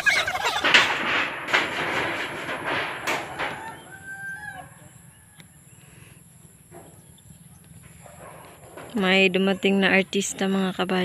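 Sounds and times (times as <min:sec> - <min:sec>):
rooster crowing: 0:03.3 - 0:05.7.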